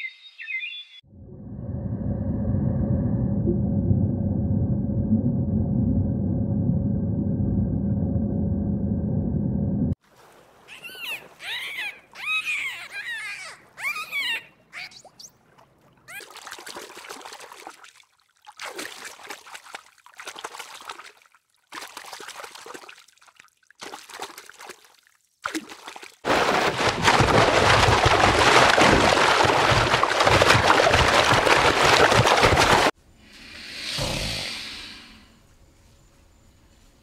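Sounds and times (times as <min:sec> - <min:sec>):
water trickling and sloshing: 0:09.9 - 0:33.0.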